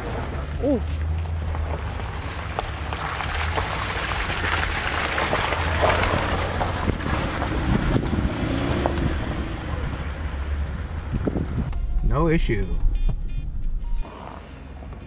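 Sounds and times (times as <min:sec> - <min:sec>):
car engine running under load: 0:00.0 - 0:15.0
wind buffeting microphone: 0:06.3 - 0:10.2, 0:10.8 - 0:12.0.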